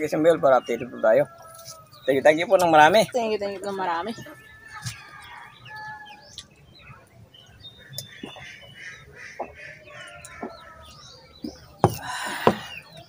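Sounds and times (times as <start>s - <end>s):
small birds chirping: 0.0s - 13.0s
chickens clucking: 7.7s - 13.0s
sharp knocks: 11.8s - 12.7s.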